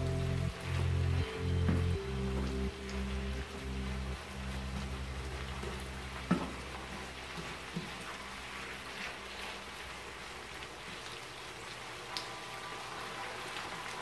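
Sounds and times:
food sizzling in a frying pan: 0:00.0 - 0:14.0
spatula stirring: 0:07.4 - 0:10.0.

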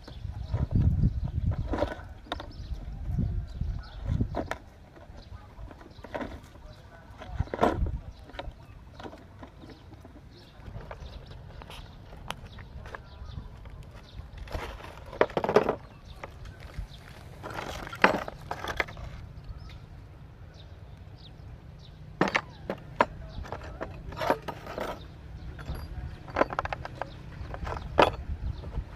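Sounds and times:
plastic tool case knocks and clatters: 0:07.2 - 0:10.0, 0:14.5 - 0:16.3, 0:17.4 - 0:19.1, 0:22.2 - 0:25.0, 0:25.6 - 0:28.9
metal parts clicking: 0:22.2 - 0:28.8.

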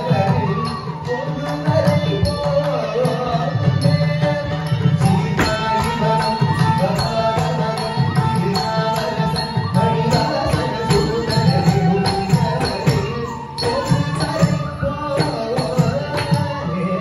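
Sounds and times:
sharp percussion strokes: 0:04.7 - 0:16.5
steady drumming: 0:05.1 - 0:07.4.

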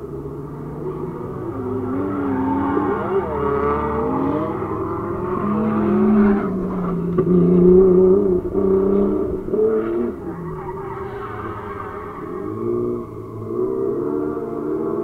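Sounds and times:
car engines revving hard: 0:00.0 - 0:15.0
tyres skidding: 0:00.0 - 0:15.0.

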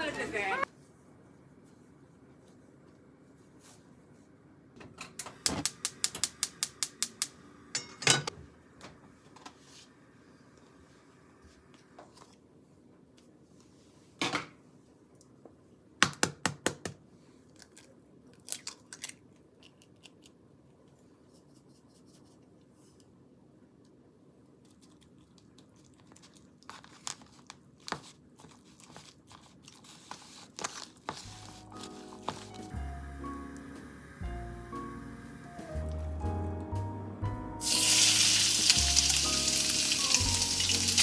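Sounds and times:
salt shaker shaking: 0:37.6 - 0:41.0.

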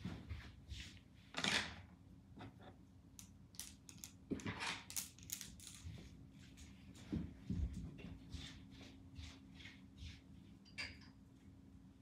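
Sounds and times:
clothes hangers clicking: 0:03.6 - 0:04.2.

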